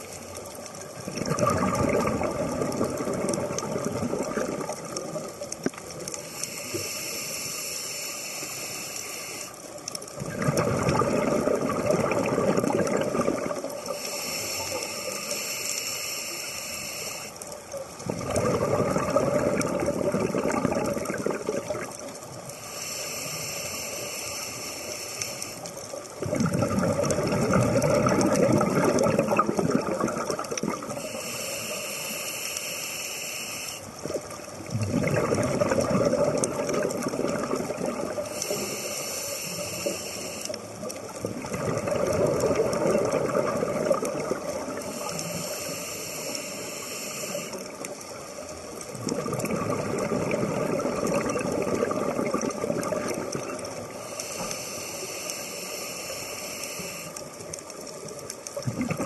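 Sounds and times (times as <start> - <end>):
burble of exhaled bubbles: 0.0 - 6.2, 10.0 - 14.0, 17.9 - 22.5, 25.9 - 31.1, 33.9 - 38.4, 40.7 - 45.4, 47.6 - 54.0, 57.4 - 59.0
hissing regulator inhale: 6.2 - 9.8, 13.8 - 17.5, 22.5 - 25.8, 30.9 - 34.0, 38.2 - 40.8, 44.7 - 48.0, 53.8 - 57.4.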